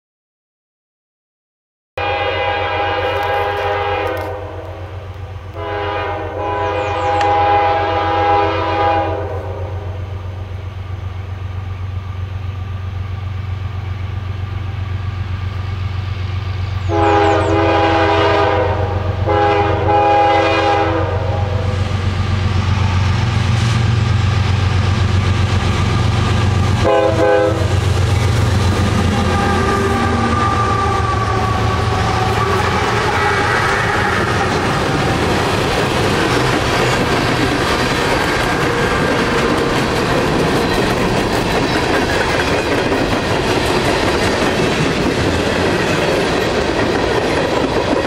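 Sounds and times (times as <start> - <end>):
locomotive air horn blasts: 2.0 - 10.2, 16.8 - 21.9, 26.8 - 27.9, 28.8 - 35.1.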